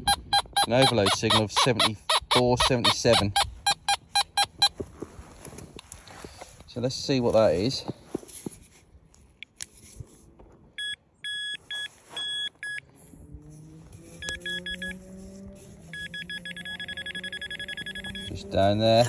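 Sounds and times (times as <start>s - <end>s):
metal detector beeping: 0.0s - 4.8s, 10.8s - 12.9s, 14.1s - 15.2s, 15.8s - 19.0s.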